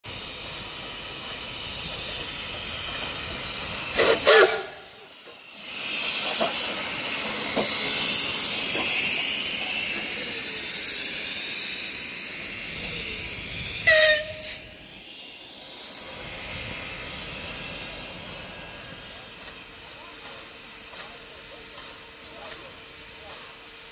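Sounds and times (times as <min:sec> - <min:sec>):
steam hissing: 0:00.0 - 0:23.9
train rolling: 0:00.0 - 0:23.9
steam whistle toots: 0:04.0 - 0:05.0, 0:13.8 - 0:14.8.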